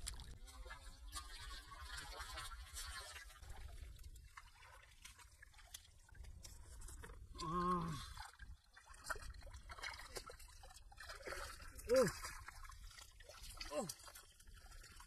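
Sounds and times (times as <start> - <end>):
hands splashing in muddy water: 0.0 - 15.0
man's wavering vocal sound: 7.4 - 8.1.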